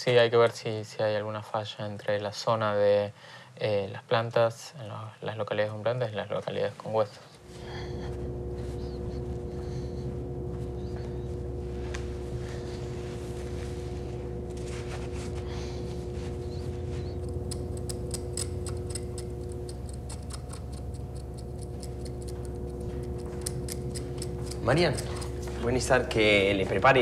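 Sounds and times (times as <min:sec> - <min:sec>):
mechanical hum: 0:00.0 - 0:27.0
quick irregular clicks: 0:17.2 - 0:25.4.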